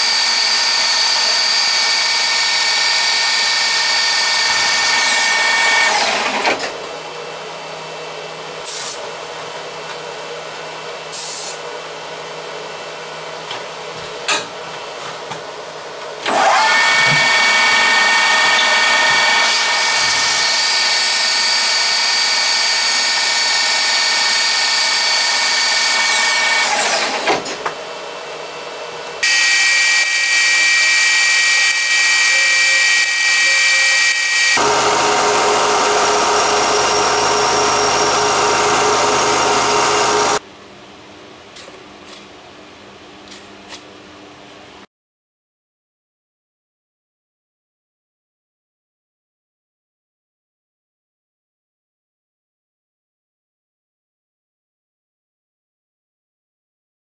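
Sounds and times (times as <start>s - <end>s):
polishing machine whine: 0.0s - 6.3s, 16.3s - 27.0s, 29.2s - 40.4s
another machine whine: 29.2s - 40.4s.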